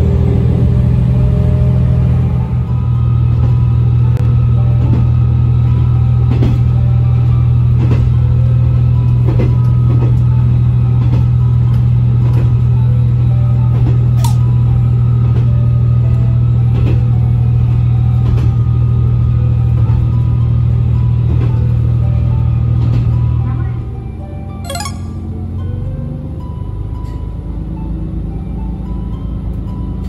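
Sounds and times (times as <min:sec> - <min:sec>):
diesel engine drone: 0:00.0 - 0:18.1
wheels clicking over rail joints: 0:03.2 - 0:23.5.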